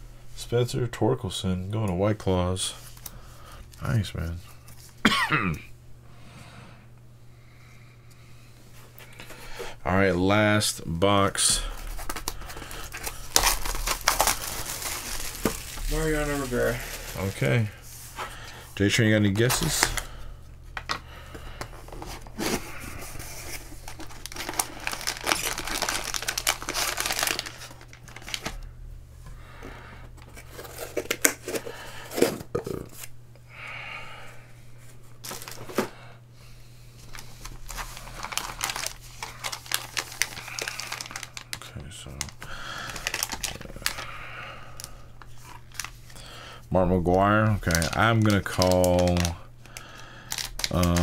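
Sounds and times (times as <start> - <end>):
wrappers tearing and crinkling: 11.5 - 17.8, 19.4 - 20.2, 22.3 - 28.6, 35.2 - 35.8, 37.0 - 46.4, 47.0 - 51.0.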